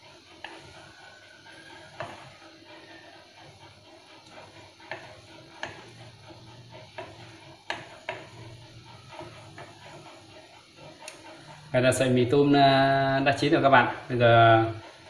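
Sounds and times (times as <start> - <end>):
liquid simmering in pot: 0.0 - 15.0.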